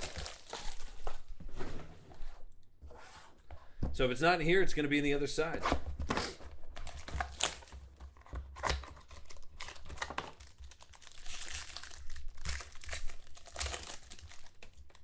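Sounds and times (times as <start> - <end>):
plastic wrapper ripping: 0.0 - 1.2, 6.7 - 15.0
plastic wrapper crinkling: 0.0 - 1.3, 6.7 - 15.0.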